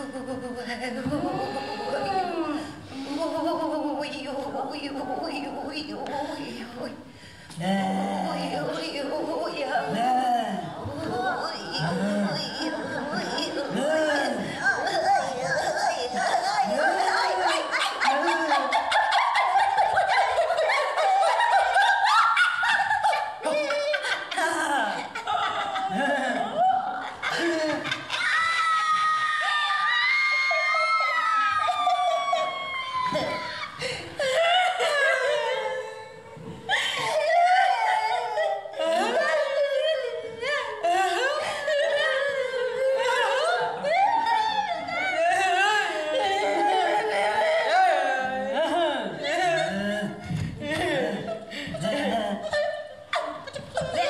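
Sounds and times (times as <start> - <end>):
women laughing: 10.8 - 54.0
women singing wordlessly: 34.4 - 54.0.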